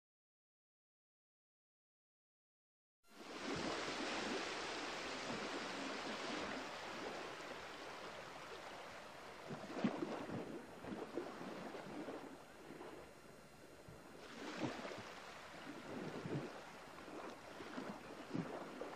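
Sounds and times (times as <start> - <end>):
rushing water: 3.1 - 13.1, 14.1 - 18.9.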